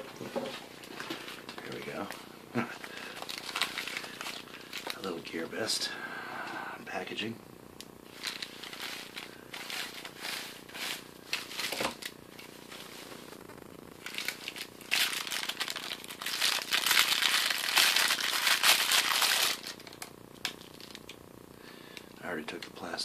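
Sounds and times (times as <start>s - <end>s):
plastic sleeve rustling: 0.2s - 5.7s, 8.0s - 21.2s
bubble wrap crackling: 0.7s - 5.7s, 8.0s - 21.2s.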